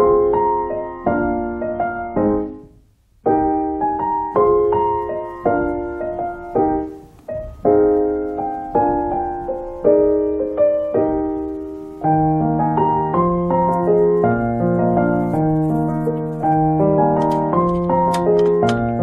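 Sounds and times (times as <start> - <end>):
gentle piano melody: 0.0 - 19.0.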